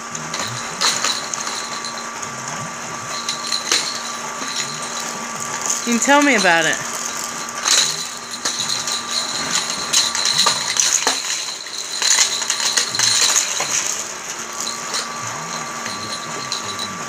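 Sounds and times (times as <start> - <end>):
toy motor whine: 0.0 - 17.0
toy cars clicking on plastic track: 7.6 - 14.0.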